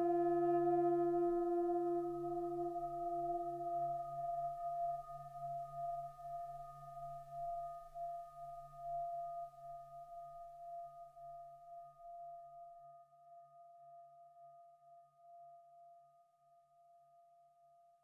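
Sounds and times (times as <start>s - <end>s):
low pulsing synthesizer drone: 0.0s - 4.8s
bell-like flute tones: 0.0s - 9.4s.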